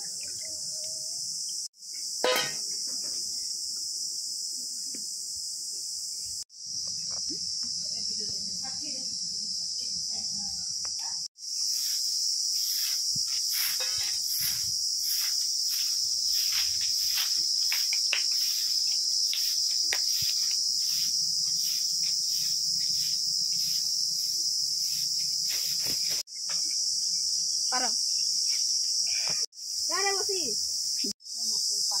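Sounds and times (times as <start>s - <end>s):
insects droning: 0.0s - 32.0s
broom sweeping dirt: 11.4s - 26.3s.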